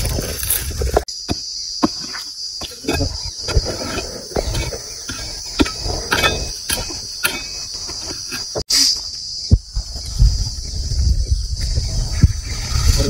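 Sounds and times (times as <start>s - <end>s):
hoe chopping dry soil: 0.0s - 9.0s
insects buzzing: 0.0s - 13.0s.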